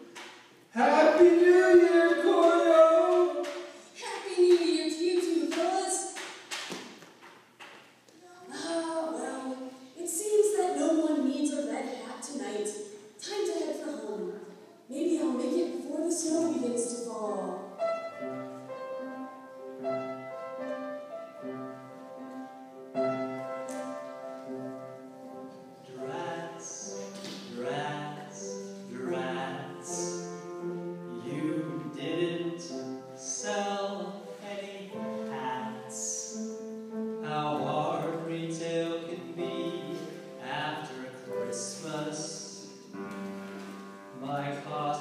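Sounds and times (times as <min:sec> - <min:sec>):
classical instrumental music: 0:00.0 - 0:45.0
person singing a melody: 0:00.8 - 0:03.7, 0:25.8 - 0:30.3, 0:31.1 - 0:36.4, 0:37.2 - 0:42.6.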